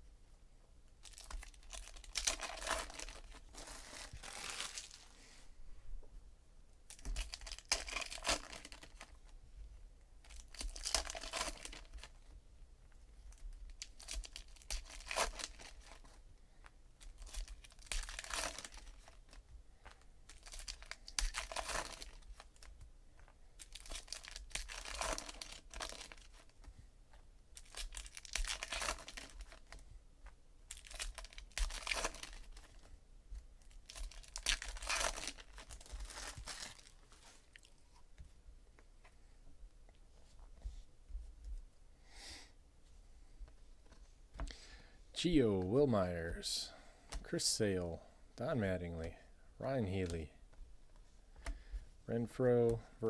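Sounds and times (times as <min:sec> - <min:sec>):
foil wrappers tearing and crinkling: 0:01.0 - 0:05.0, 0:06.9 - 0:09.1, 0:10.3 - 0:12.1, 0:13.8 - 0:16.1, 0:17.0 - 0:19.4, 0:20.3 - 0:22.7, 0:23.6 - 0:26.5, 0:27.6 - 0:29.8, 0:30.7 - 0:32.9, 0:33.6 - 0:37.7.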